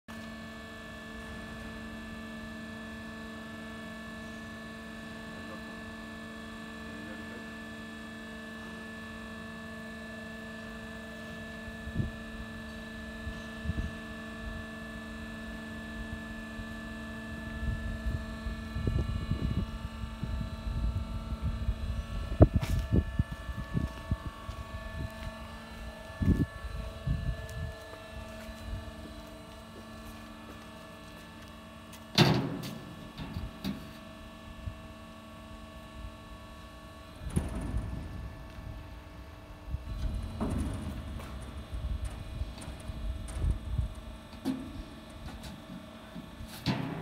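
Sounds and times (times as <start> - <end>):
hydraulic power unit humming: 0.1 - 47.0
low rumbling: 17.6 - 30.9.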